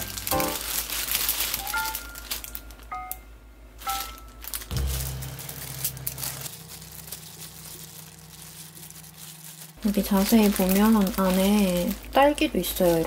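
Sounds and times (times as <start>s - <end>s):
light music notes: 0.0s - 9.8s
low steady hum: 0.0s - 13.0s
plastic gloves crinkling: 0.0s - 13.0s.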